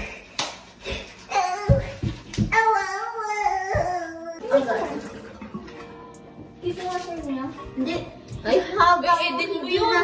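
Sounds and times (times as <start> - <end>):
girl singing: 1.3 - 4.4.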